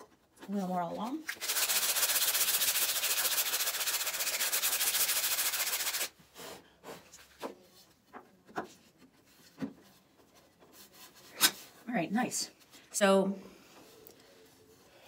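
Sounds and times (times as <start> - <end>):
hand sanding with sandpaper: 1.3 - 6.1.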